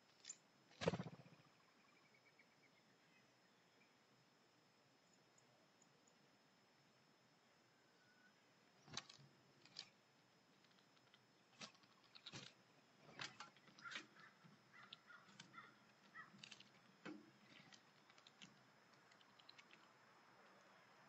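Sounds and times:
faint steady high tone: 1.5 - 8.7
bird pecking on wooden feeder: 10.6 - 20.6
short bird calls: 13.6 - 16.5.

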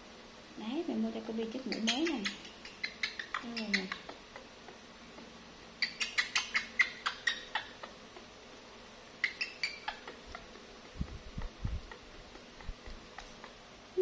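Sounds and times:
monkey squeaking chirps: 1.6 - 4.8, 5.8 - 8.0, 9.2 - 10.6.

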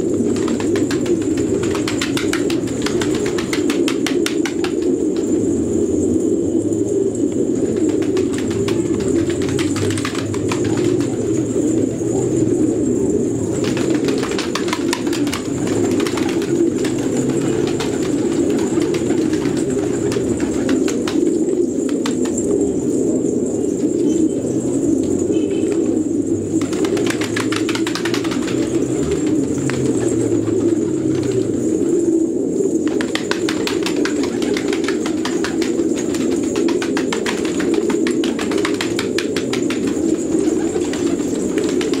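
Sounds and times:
wings flapping: 0.0 - 5.5, 7.6 - 11.9, 13.4 - 22.6, 26.5 - 32.0, 32.8 - 42.0
pigeons cooing: 0.0 - 42.0.

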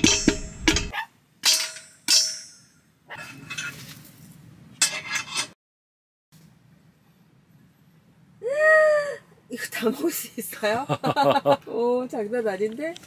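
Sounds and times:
metal cookware clanging: 0.0 - 3.9, 4.8 - 5.6
soft rustling: 3.3 - 4.5.

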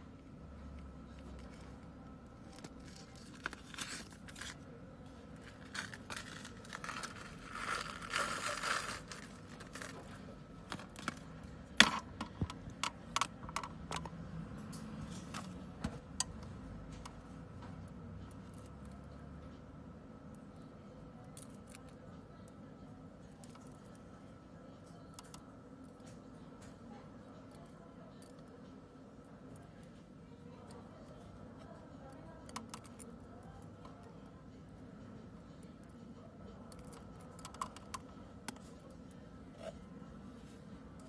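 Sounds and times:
plastic bag crinkling: 5.4 - 10.2.

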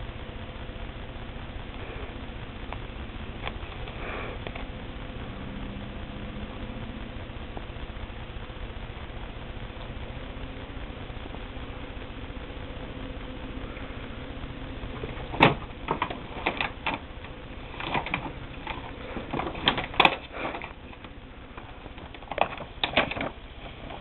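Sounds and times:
ferrets scuffling with clicks and knocks: 14.9 - 24.0.

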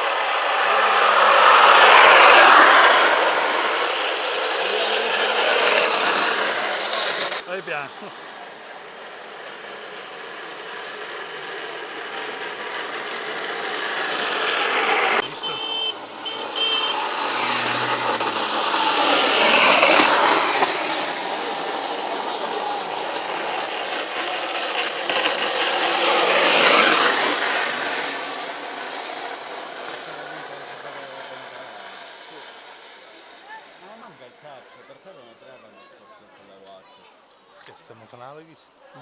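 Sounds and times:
cart wheels rumbling on asphalt: 0.0 - 34.0.

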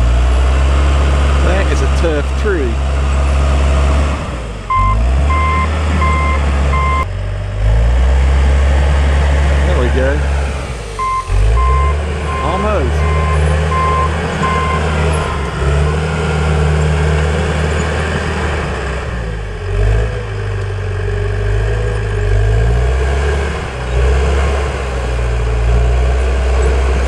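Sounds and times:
diesel engine working hard: 0.0 - 27.0
backup alarm beeping: 4.7 - 7.1, 11.0 - 14.9.

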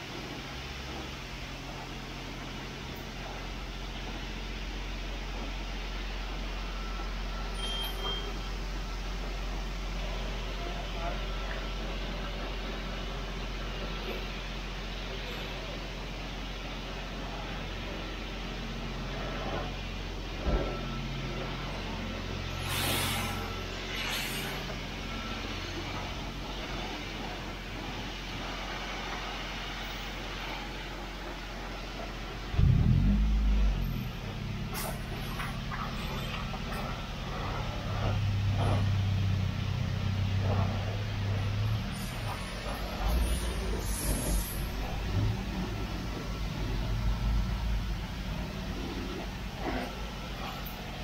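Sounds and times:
steady low hum: 0.0 - 51.0
pressure washer spray hissing: 22.5 - 24.6
low steady hum: 29.9 - 51.0.

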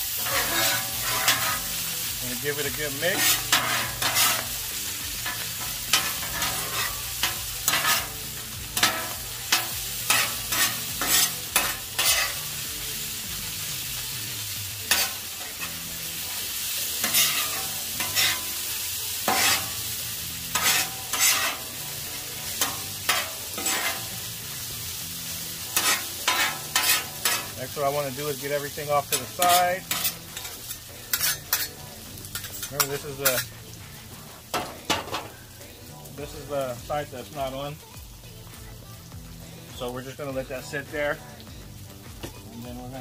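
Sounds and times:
meat sizzling on griddle: 0.0 - 43.0
metal spatulas scraping griddle: 0.1 - 4.6, 5.2 - 12.6, 14.8 - 15.8, 17.0 - 24.3, 25.7 - 33.5.

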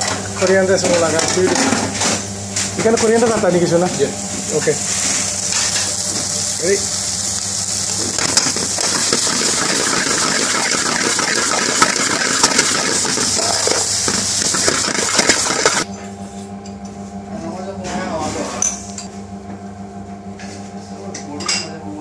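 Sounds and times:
food hissing in hot pan: 4.6 - 15.8.

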